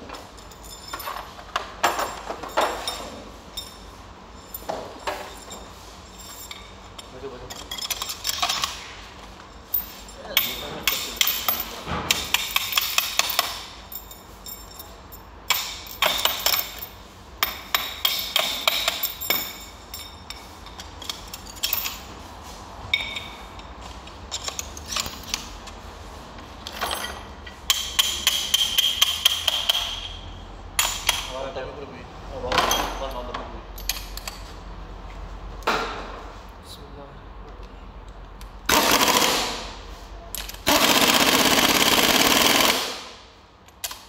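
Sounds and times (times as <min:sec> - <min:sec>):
steel parts clinking together: 0:00.1 - 0:08.9, 0:09.6 - 0:22.1, 0:22.9 - 0:25.5, 0:26.6 - 0:30.2, 0:30.8 - 0:31.4, 0:32.5 - 0:34.5.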